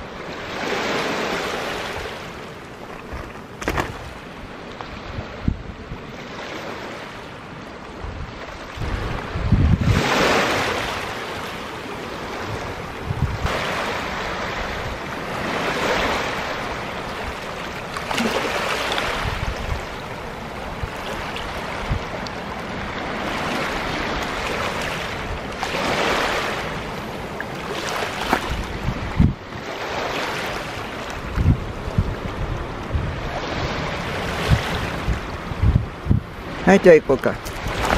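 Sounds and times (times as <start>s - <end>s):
waves lapping on pebble shore: 0.3s - 5.2s, 8.7s - 29.0s, 29.6s - 31.5s, 36.5s - 37.9s.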